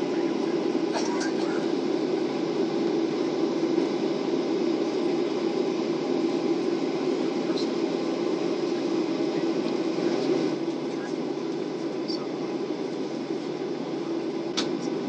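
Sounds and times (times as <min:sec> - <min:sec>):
airliner cabin engine rumble: 0:00.0 - 0:15.0.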